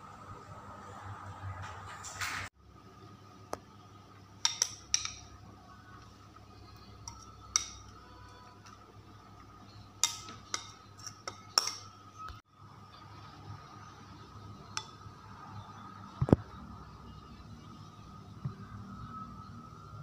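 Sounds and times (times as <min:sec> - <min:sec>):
spoon clinking against bowls: 0:04.4 - 0:05.4, 0:06.7 - 0:08.9, 0:09.7 - 0:12.1, 0:14.7 - 0:15.1.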